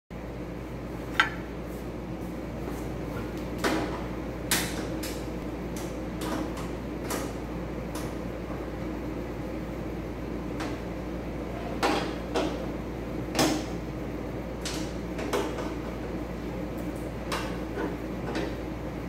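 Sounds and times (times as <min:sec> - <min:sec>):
steady low hum: 0:00.2 - 0:19.0
sharp handling clicks and knocks: 0:01.2 - 0:01.5.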